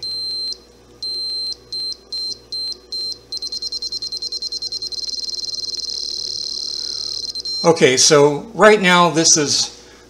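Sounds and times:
short high electronic beeps: 0.0s - 7.8s.

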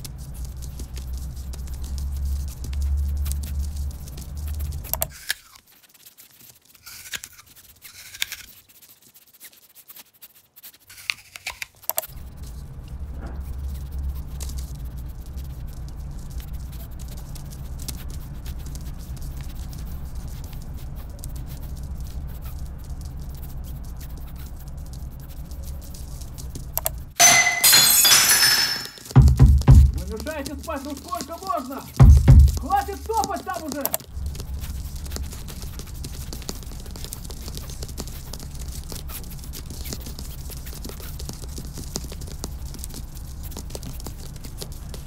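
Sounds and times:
feet pattering on wooden floor: 29.2s - 33.7s.

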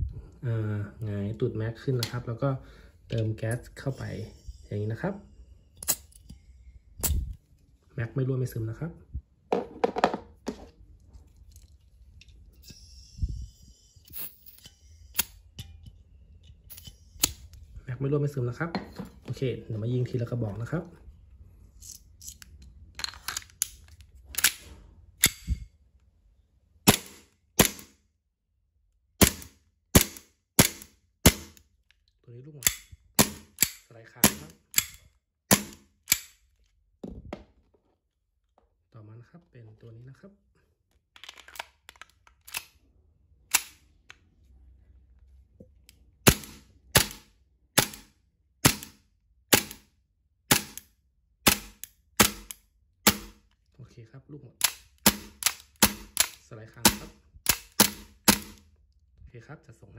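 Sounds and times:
sharp airsoft pistol shots: 26.9s - 27.9s, 29.2s - 31.6s, 32.6s - 34.5s, 35.5s - 36.3s, 46.3s - 49.8s, 50.5s - 50.8s, 51.4s - 53.4s, 54.6s - 56.2s, 56.8s - 58.6s
pistol magazine and slide clicks: 43.5s - 43.8s.

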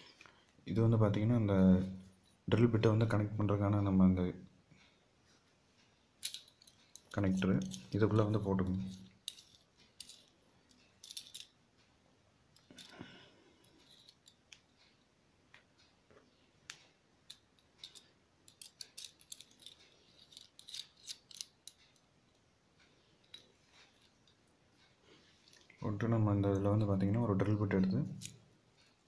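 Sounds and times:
small metallic clicks: 8.8s - 11.9s, 16.7s - 25.8s.

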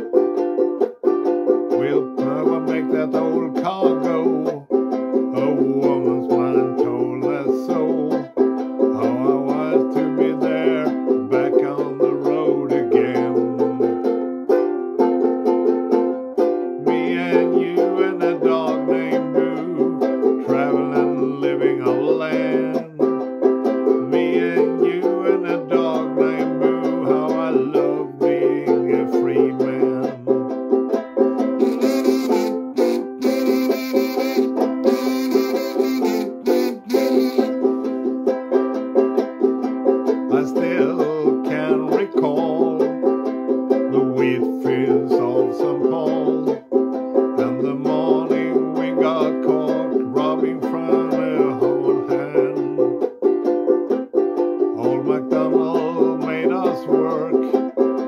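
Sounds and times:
banjo-ukulele strumming chords: 0.0s - 58.0s
harmonica melody: 0.0s - 58.0s.

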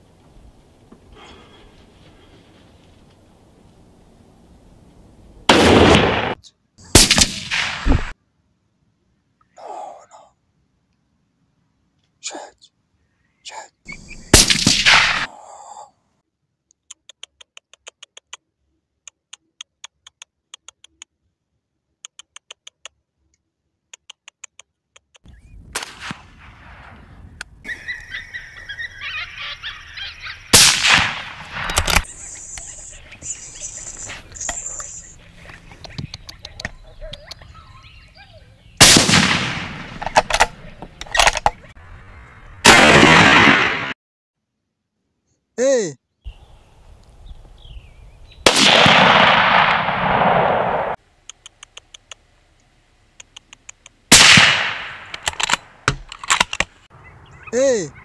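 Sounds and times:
rifle shots: 5.5s - 8.2s, 14.3s - 15.3s, 25.8s - 26.9s, 30.5s - 32.1s, 38.8s - 40.6s, 42.6s - 44.0s, 48.4s - 51.0s, 54.1s - 56.1s
faint rapid clicking: 51.2s - 54.0s.

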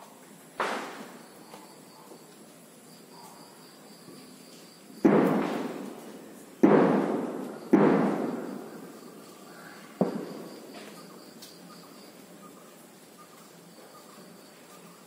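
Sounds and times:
loud echoing bangs: 0.6s - 1.2s, 5.0s - 10.9s.

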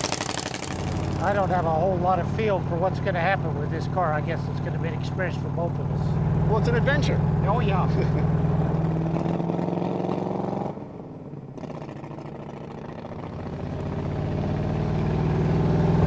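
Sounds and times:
car engine running: 0.0s - 16.0s.

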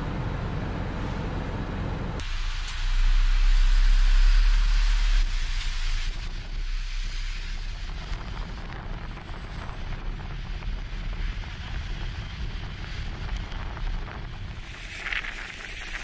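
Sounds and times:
vehicle engines rumbling: 0.0s - 16.0s
wind buffeting microphone: 6.1s - 16.0s.

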